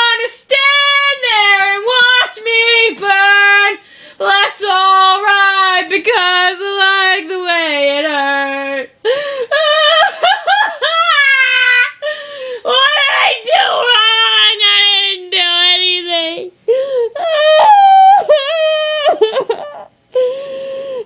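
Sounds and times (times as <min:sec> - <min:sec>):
woman breathing: 0:03.8 - 0:04.2, 0:09.0 - 0:09.8, 0:12.0 - 0:12.7, 0:16.6 - 0:17.2, 0:20.1 - 0:21.0
woman wailing: 0:09.5 - 0:12.1, 0:17.2 - 0:21.0.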